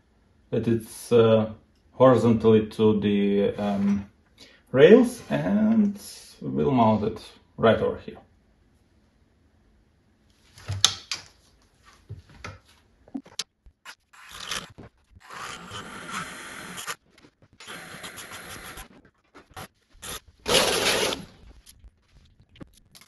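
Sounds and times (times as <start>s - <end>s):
cordless power tool running: 20.0s - 21.3s.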